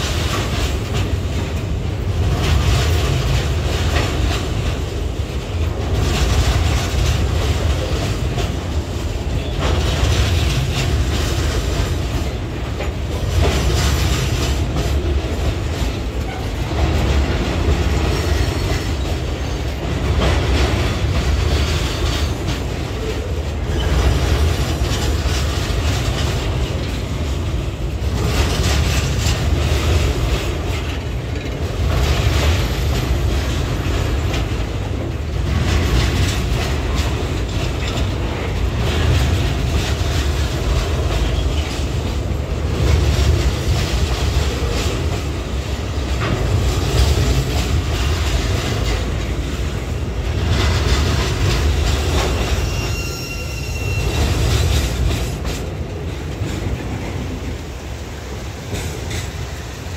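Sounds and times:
train wheels clattering over rail joints: 0.0s - 59.9s
high wheel squeal: 52.3s - 54.6s.

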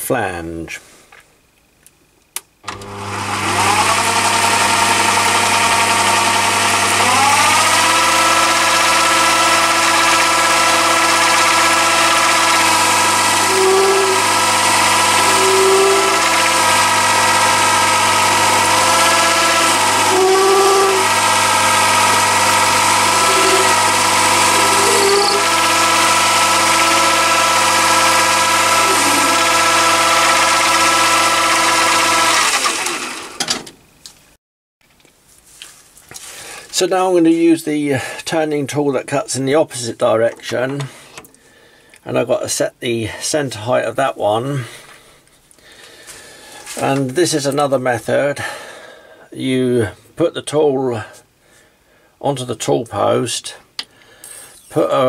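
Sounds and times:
lathe motor whining: 2.6s - 33.6s
tool cutting steel: 2.7s - 33.6s.

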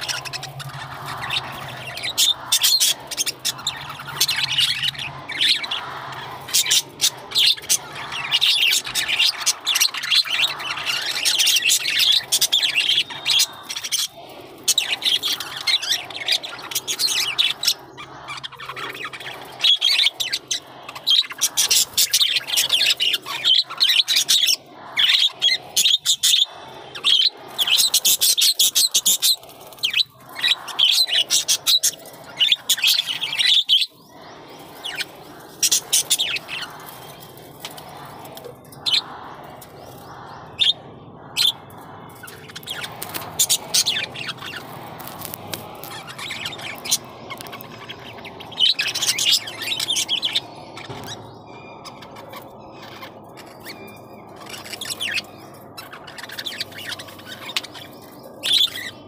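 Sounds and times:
budgerigars chirping: 42.3s - 57.9s.

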